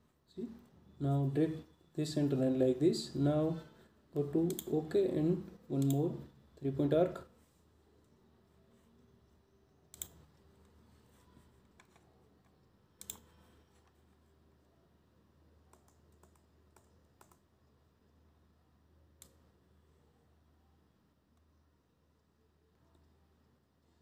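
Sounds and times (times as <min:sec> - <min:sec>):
computer mouse clicks: 0:04.4 - 0:04.8, 0:05.8 - 0:06.0, 0:09.9 - 0:10.8, 0:11.6 - 0:14.0, 0:15.7 - 0:17.5.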